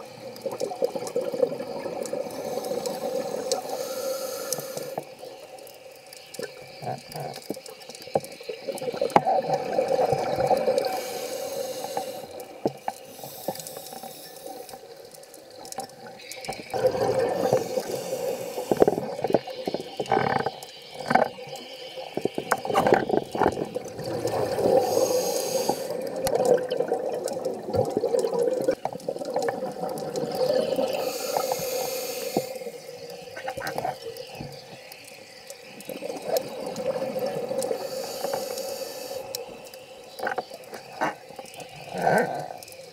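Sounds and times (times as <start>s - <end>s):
regulator inhalation hum: 0.0s - 6.0s, 9.7s - 15.4s, 16.7s - 29.2s, 30.2s - 42.9s
small clicks: 0.1s - 16.8s, 17.4s - 26.6s, 27.2s - 42.9s
exhaust bubbles rushing: 23.8s - 24.9s.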